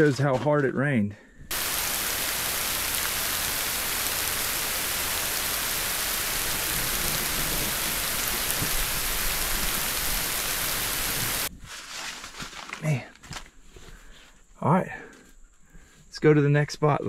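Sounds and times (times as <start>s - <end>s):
rain falling: 1.5s - 11.5s.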